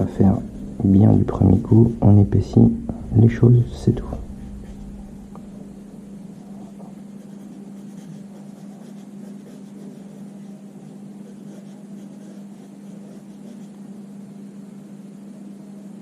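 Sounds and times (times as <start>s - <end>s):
low hum: 0.0s - 16.0s
pencil scratching on paper: 6.3s - 13.8s.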